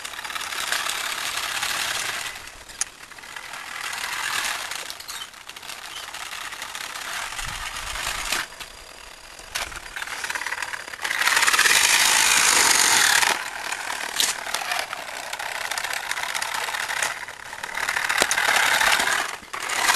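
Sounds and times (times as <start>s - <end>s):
toy car motors rattling: 0.0s - 19.9s
sharp clicks: 14.1s - 19.9s.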